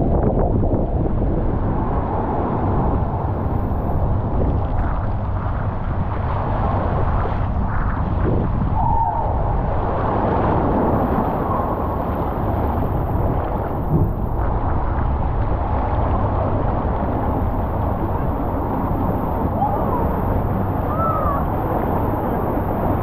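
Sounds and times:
rider sliding on waterslide: 0:00.0 - 0:23.0
wind rumbling on microphone: 0:00.0 - 0:23.0
rushing water: 0:00.2 - 0:23.0.

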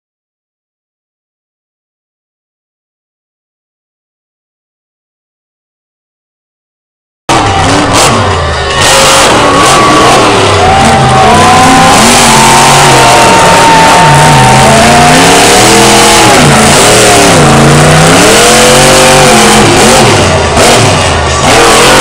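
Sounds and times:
truck engine revving hard: 0:07.3 - 0:22.0.

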